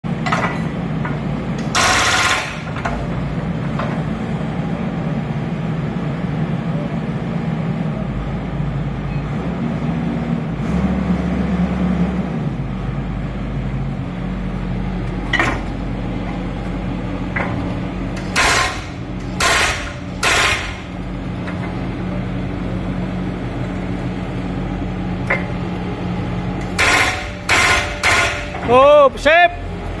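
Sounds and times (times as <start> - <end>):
diesel engine running: 0.0 - 30.0
hydraulic breaker clattering: 0.2 - 3.1, 17.3 - 21.8, 26.6 - 28.9.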